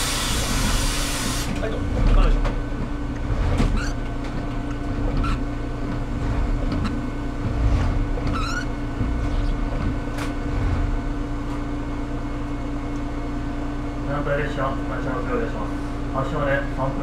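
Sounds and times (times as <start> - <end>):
diesel railcar idling: 0.0 - 16.9
windscreen wiper squeaking: 0.4 - 11.3.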